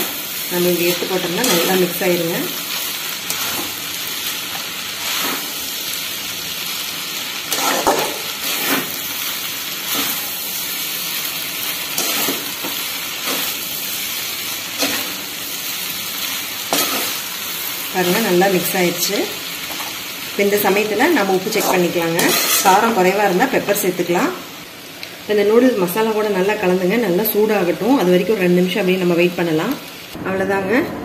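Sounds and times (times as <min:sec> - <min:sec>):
noodles sizzling in a pan: 0:00.0 - 0:30.2
ladles scraping a metal pan: 0:21.5 - 0:22.8.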